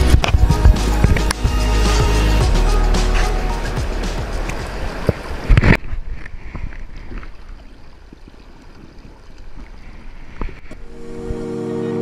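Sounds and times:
wind rumble on microphone: 0.0 - 1.3
river water splashing: 0.0 - 12.0.

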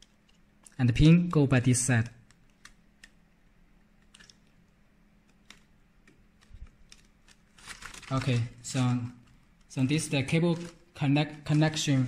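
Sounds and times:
small clicks of cable handling: 4.0 - 4.6.

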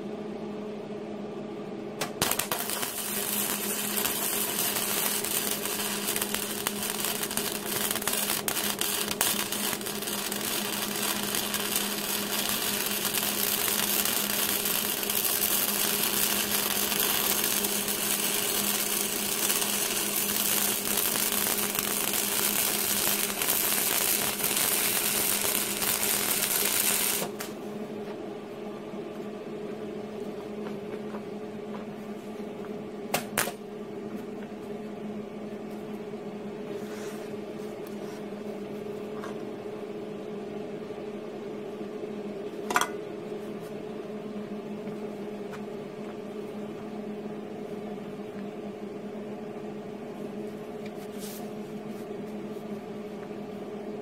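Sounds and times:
steady low hum: 0.0 - 54.0
welding arc crackling: 2.0 - 27.6.

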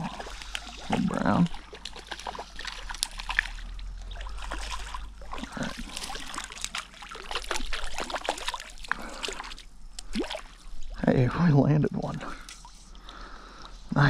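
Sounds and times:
fish splashing in water: 0.0 - 11.0
net dipped in water dripping: 0.0 - 11.5.

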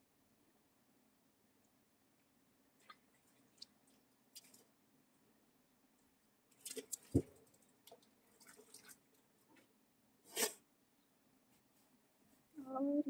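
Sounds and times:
faint clicks and rustles: 6.0 - 9.8.

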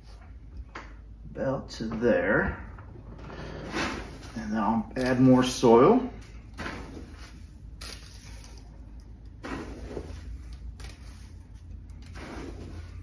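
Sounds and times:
soil pouring with soft rustling: 3.6 - 5.6, 6.3 - 13.0.

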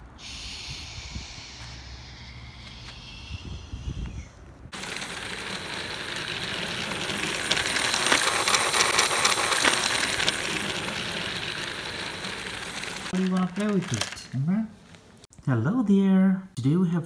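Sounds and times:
toy train rattling on track: 4.7 - 14.3.

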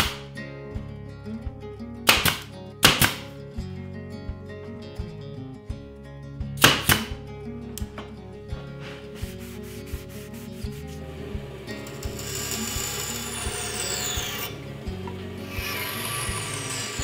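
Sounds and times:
background music with steady beat: 0.0 - 17.0
rubbing strokes on wood: 8.6 - 11.4
band saw cutting wood: 9.0 - 17.0.

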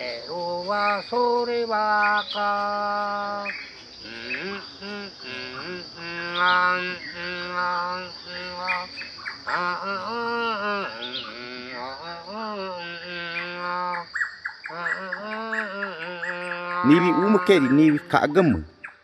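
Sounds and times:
person singing long held notes: 0.0 - 8.9, 9.5 - 14.1, 14.7 - 18.3
crickets chirring: 0.0 - 19.0.

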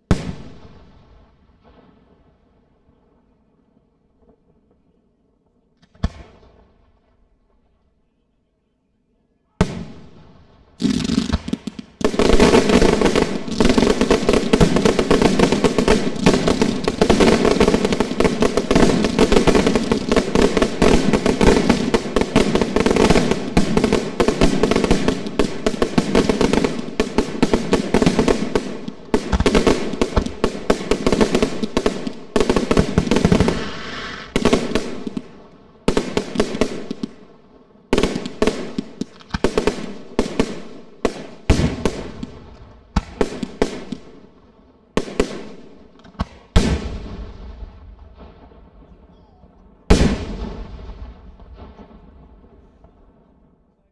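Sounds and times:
firework shells bursting: 32.7 - 35.2.

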